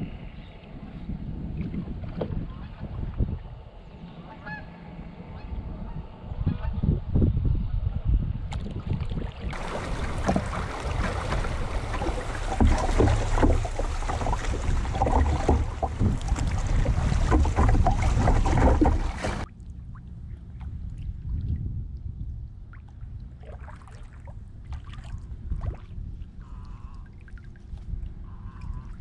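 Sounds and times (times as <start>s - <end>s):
wind on microphone: 0.0s - 19.5s, 20.2s - 29.0s
kayak drifting on calm water: 8.5s - 22.0s, 22.6s - 29.0s
rushing splashing river water: 9.5s - 19.5s
paddle strokes: 9.6s - 19.5s.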